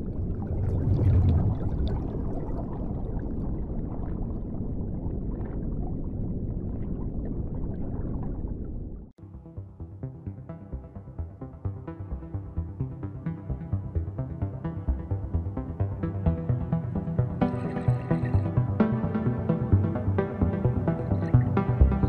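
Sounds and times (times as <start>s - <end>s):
underwater bubbling and rumbling: 0.0s - 9.2s, 12.1s - 22.0s
music: 9.2s - 22.0s.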